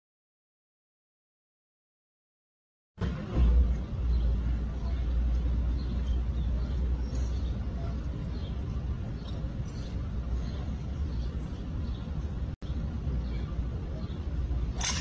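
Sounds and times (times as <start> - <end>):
faint crowd hum: 3.0 - 15.0
steady low rumble: 3.0 - 15.0.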